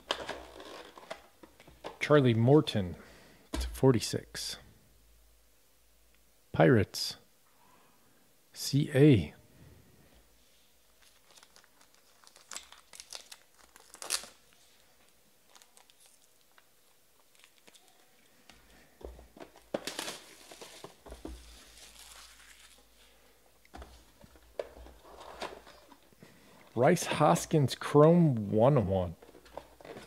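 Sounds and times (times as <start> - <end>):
plastic wrap crinkling and tearing: 10.9 - 18.3, 19.4 - 23.1.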